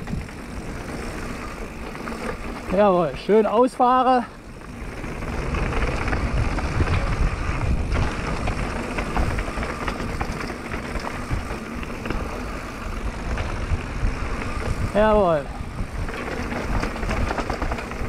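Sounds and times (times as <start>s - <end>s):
bike tyres crunching over gravel: 0.0s - 18.0s
stones and bike rattling: 0.0s - 18.0s
wind buffeting microphone: 0.0s - 18.0s.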